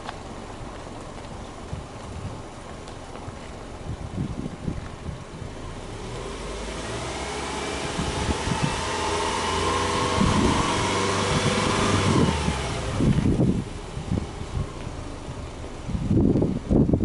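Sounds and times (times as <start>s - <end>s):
car engine revving: 5.5s - 17.0s.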